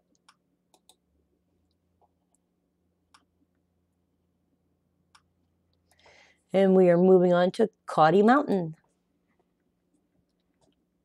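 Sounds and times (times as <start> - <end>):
low steady hum: 0.0 - 11.0
computer mouse clicks: 0.1 - 1.0.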